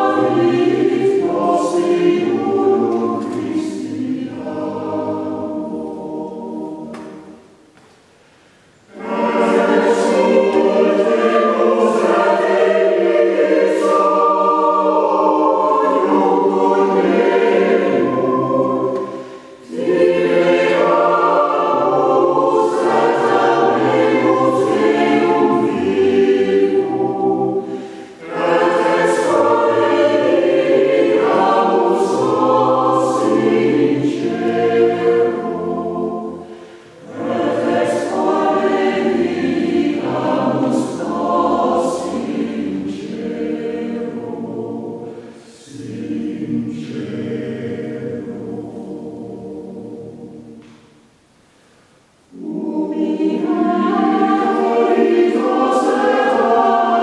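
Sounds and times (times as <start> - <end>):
choir singing a cappella: 0.0 - 7.7, 8.7 - 57.0.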